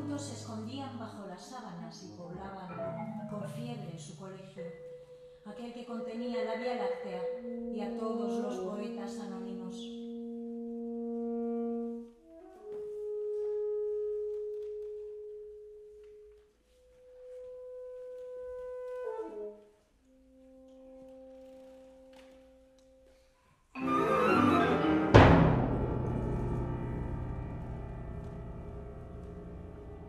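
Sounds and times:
full ensemble with percussion: 0:23.8 - 0:29.7.

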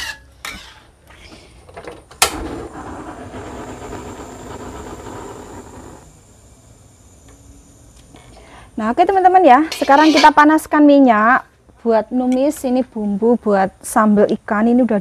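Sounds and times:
gas burner flame hissing: 0:00.6 - 0:11.2.

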